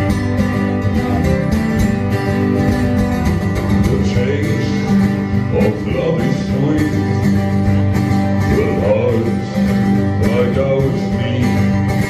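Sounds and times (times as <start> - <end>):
acoustic guitars strumming: 0.0 - 12.0
person singing: 3.8 - 7.5, 8.4 - 12.0.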